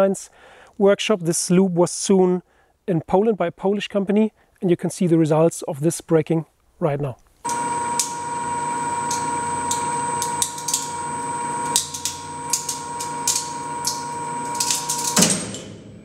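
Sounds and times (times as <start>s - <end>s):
test machine hum and whine: 7.4s - 16.0s.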